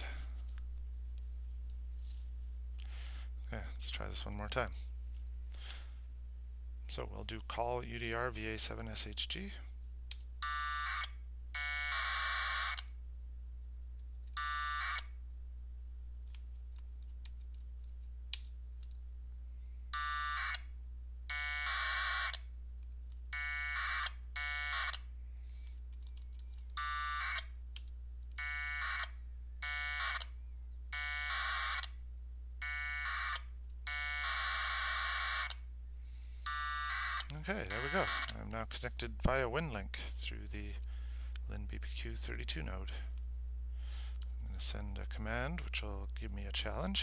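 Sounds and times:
steady low hum: 0.0s - 47.0s
raspy packet radio data bursts: 36.5s - 38.5s.

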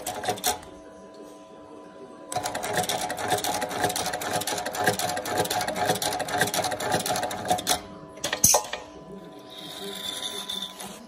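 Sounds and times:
sewing machine rattling: 0.0s - 0.6s, 2.4s - 7.8s.

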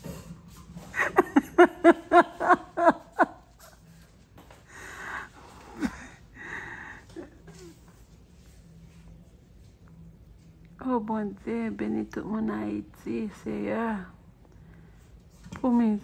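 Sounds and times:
person laughing: 1.0s - 3.6s.

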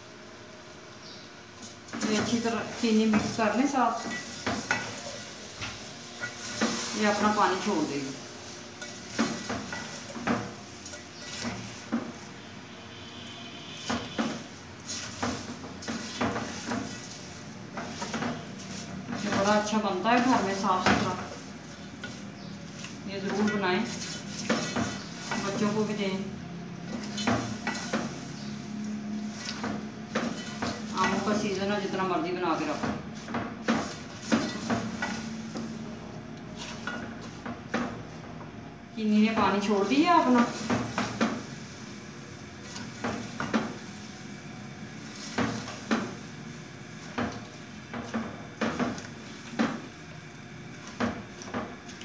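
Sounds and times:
spatula scraping metal pot: 1.6s - 7.8s, 8.4s - 12.2s, 13.9s - 31.8s, 36.5s - 37.4s.

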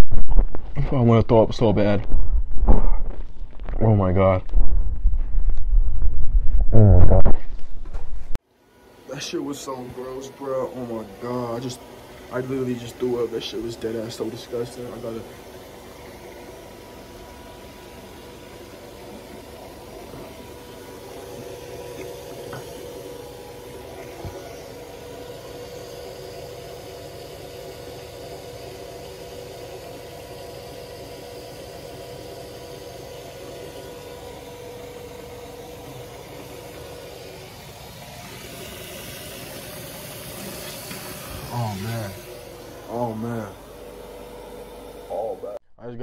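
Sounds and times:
mechanical hum with drone: 0.0s - 46.0s
hiss: 38.2s - 42.4s.

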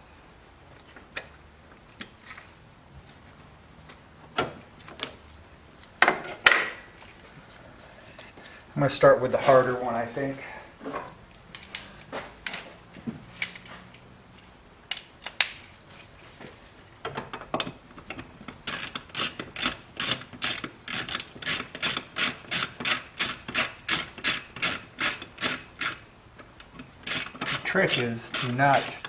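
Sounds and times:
hand ratchet clicking: 18.0s - 26.0s, 26.6s - 29.0s.

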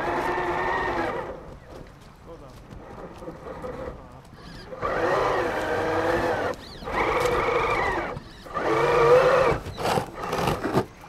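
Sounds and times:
electric motor whining: 0.0s - 1.4s, 3.4s - 10.8s.

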